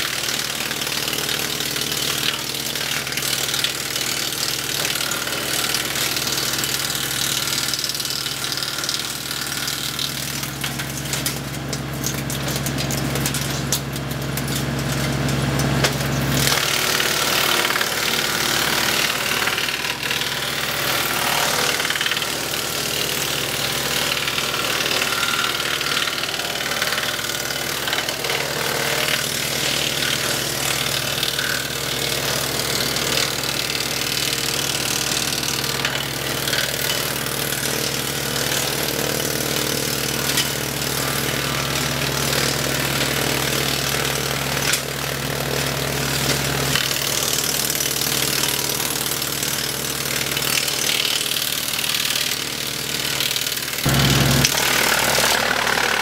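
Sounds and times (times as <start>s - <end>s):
wood chipper chewing branches: 0.0s - 56.0s
tractor engine hum: 53.9s - 56.0s.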